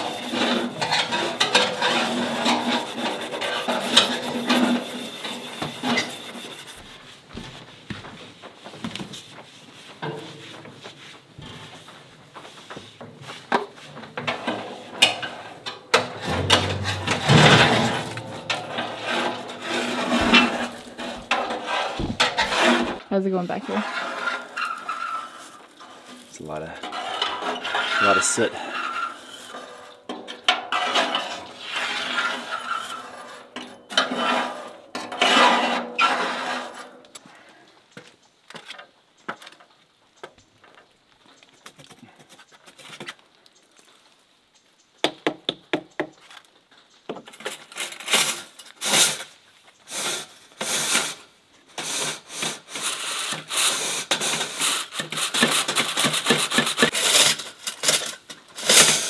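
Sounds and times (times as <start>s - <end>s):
metal rod scraping soot: 0.0s - 7.3s, 11.4s - 37.1s, 47.4s - 59.0s
scraping of metal stovepipe: 0.0s - 7.5s, 12.6s - 37.0s
knocks: 22.0s - 22.5s.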